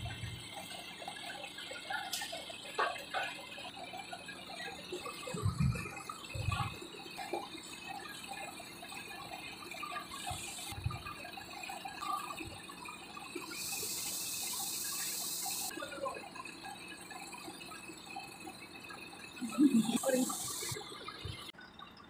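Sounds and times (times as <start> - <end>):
compressed air hissing: 13.5 - 15.7, 19.5 - 20.8.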